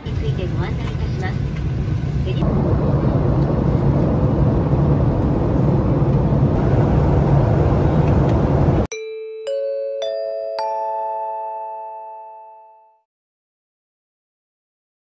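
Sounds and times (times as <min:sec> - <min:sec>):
airliner cabin engine rumble: 0:00.0 - 0:08.9.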